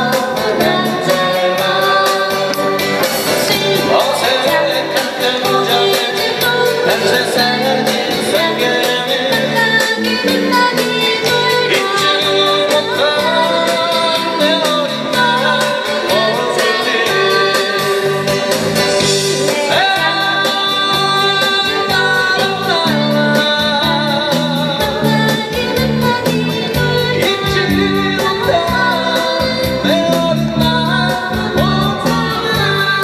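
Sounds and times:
woman singing: 0:00.0 - 0:33.0
djembe beat: 0:02.4 - 0:25.4.

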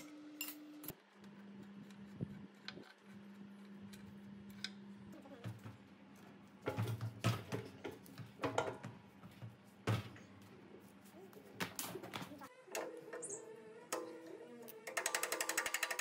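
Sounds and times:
wrenches ticking on a bolt: 0:13.9 - 0:16.0.

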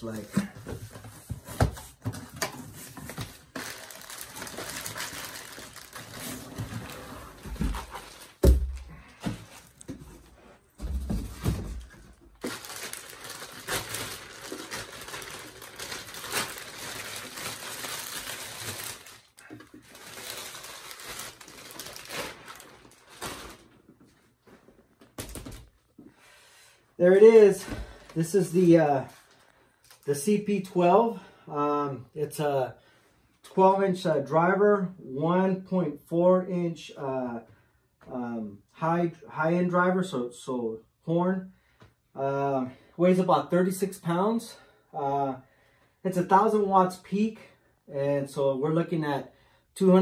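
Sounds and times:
plastic bag crinkling: 0:03.4 - 0:08.9, 0:12.3 - 0:23.8.

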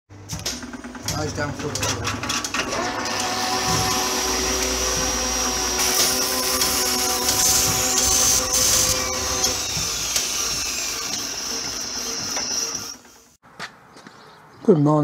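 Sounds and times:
mechanical whirring: 0:00.5 - 0:13.4
steady humming tones: 0:03.5 - 0:11.8
high whine falling in pitch: 0:05.1 - 0:10.6.

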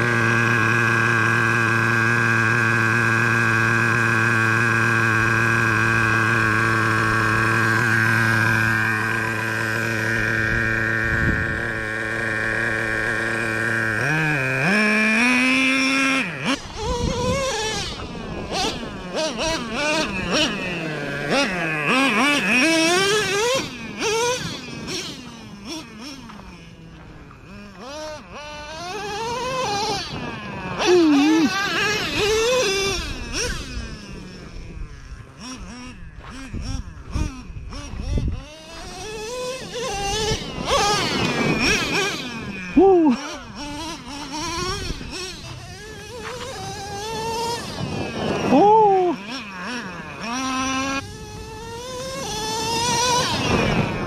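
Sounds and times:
small engine idling and revving: 0:00.0 - 0:54.0.

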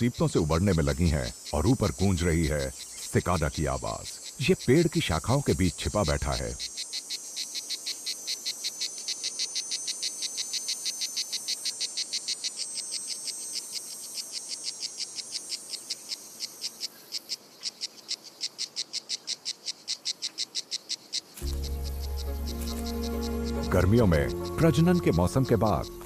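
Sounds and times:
cicada buzzing pulses: 0:00.0 - 0:26.0.

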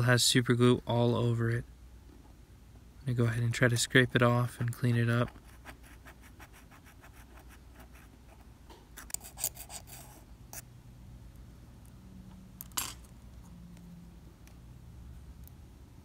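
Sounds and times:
tweezers scraping metal: 0:09.0 - 0:10.7.

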